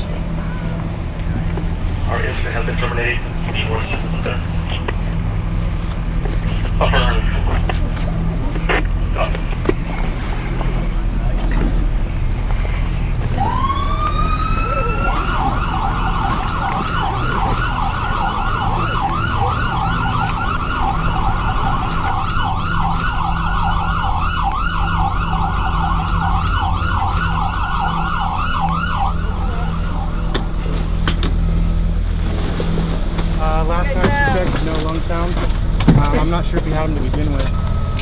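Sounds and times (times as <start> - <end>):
emergency vehicle siren wailing: 0.0 - 38.0
low rumble: 0.0 - 38.0.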